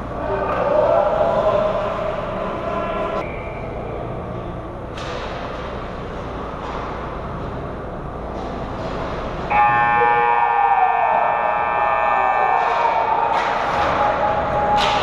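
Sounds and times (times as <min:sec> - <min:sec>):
ice rink ambience: 0:00.0 - 0:15.0
multi-tone rink horn: 0:09.5 - 0:10.6.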